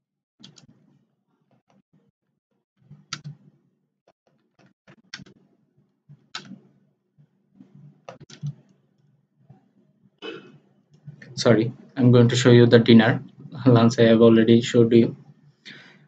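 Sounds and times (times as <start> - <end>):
keyboard typing clicks: 6.4 - 6.6, 8.1 - 8.6.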